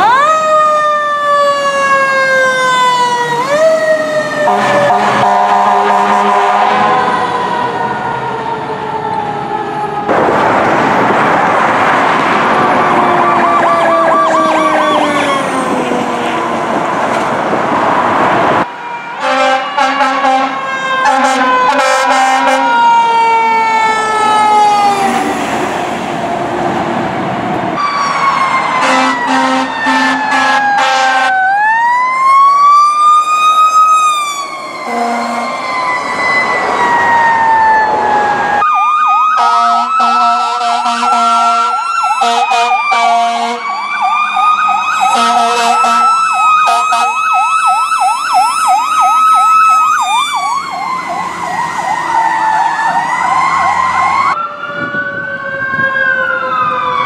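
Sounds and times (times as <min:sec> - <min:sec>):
siren yelp: 0:00.0 - 0:10.8, 0:12.4 - 0:17.8, 0:18.6 - 0:25.4, 0:27.8 - 0:57.0
fire truck siren wailing: 0:00.0 - 0:57.0
horn blasts: 0:04.5 - 0:07.1, 0:19.2 - 0:22.8, 0:28.8 - 0:31.3, 0:34.9 - 0:35.6, 0:39.4 - 0:43.7, 0:45.1 - 0:47.2.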